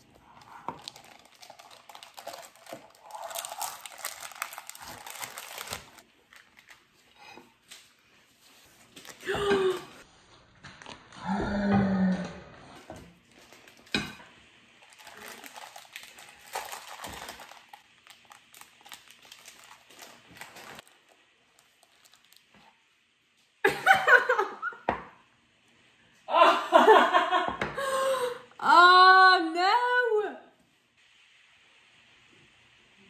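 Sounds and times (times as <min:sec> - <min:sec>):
parchment paper crinkling: 0:00.0 - 0:11.2, 0:13.2 - 0:14.0, 0:14.8 - 0:22.9
woman laughing: 0:09.2 - 0:09.9, 0:23.6 - 0:24.9, 0:26.3 - 0:28.3.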